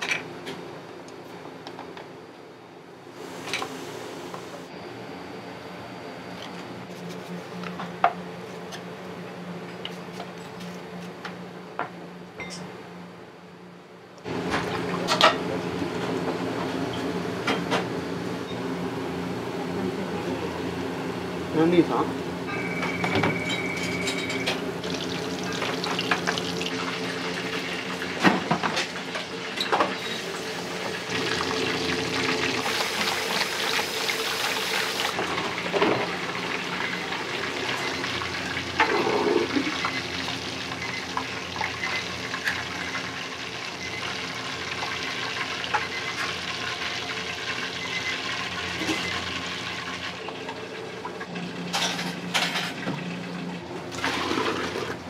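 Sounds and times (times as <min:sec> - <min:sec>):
kitchen equipment humming: 0:00.0 - 0:55.0
water running from a tap: 0:24.8 - 0:28.0, 0:31.0 - 0:35.6, 0:53.9 - 0:55.0.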